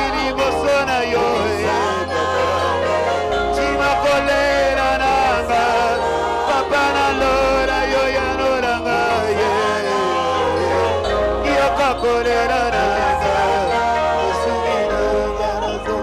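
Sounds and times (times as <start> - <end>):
gospel music with singing: 0.0 - 16.0.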